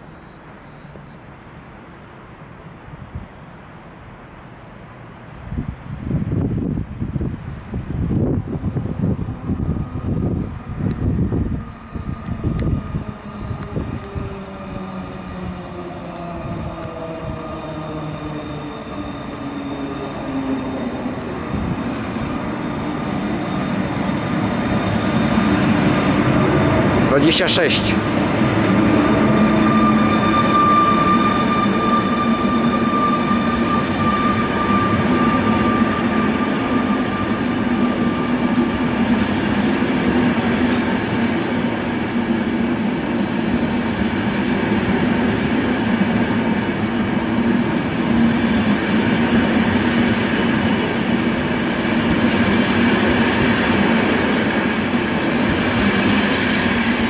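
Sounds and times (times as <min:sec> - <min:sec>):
train wheels rumbling on rails: 0:06.1 - 0:57.0.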